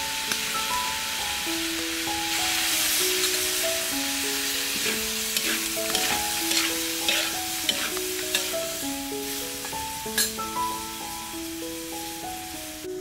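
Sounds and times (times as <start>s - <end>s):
gizzards sizzling in wok: 0.0s - 13.0s
soft background music: 0.0s - 13.0s
metal ladle scraping and knocking: 4.8s - 8.6s.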